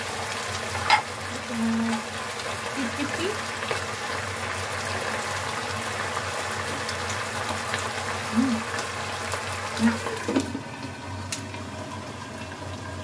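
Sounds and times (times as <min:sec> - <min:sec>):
sauce bubbling in a wok: 0:00.0 - 0:13.0
metal lid clank: 0:00.8 - 0:01.1.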